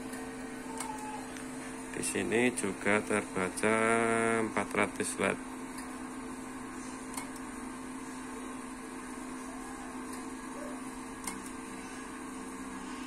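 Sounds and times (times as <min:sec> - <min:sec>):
amplifier cooling fans humming: 0:00.0 - 0:13.0.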